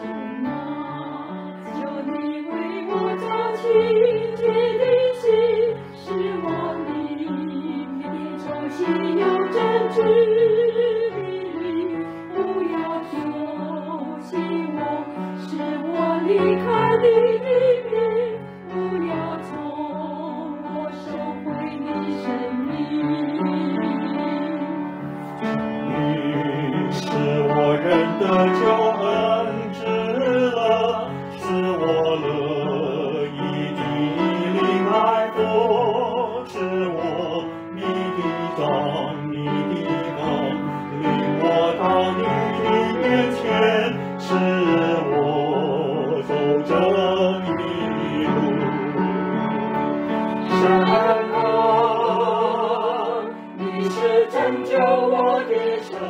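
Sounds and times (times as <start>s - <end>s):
person singing with vibrato: 25.8s - 49.4s, 50.2s - 56.0s.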